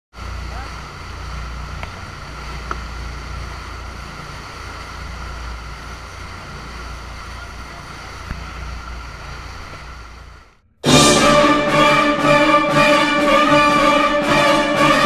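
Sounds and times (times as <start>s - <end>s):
boat engine rumbling: 0.1s - 12.2s.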